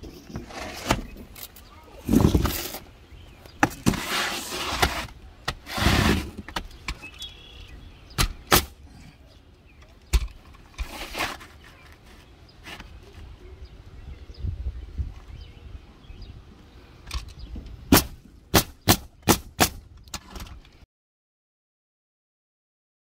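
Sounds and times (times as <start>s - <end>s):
shingles scraping into place: 0.0s - 2.9s, 3.6s - 7.1s, 10.3s - 13.1s
roofing nailer firing: 8.2s - 8.8s, 17.9s - 19.8s.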